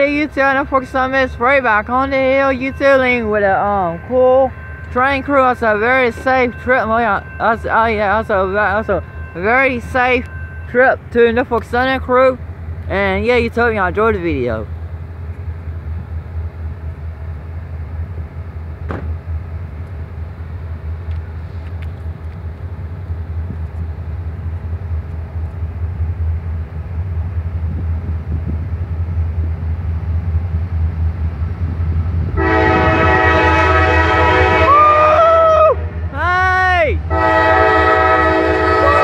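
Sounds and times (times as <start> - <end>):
diesel locomotive rumble: 0.0 - 39.0
locomotive air horn blast: 32.4 - 36.1, 37.0 - 39.0.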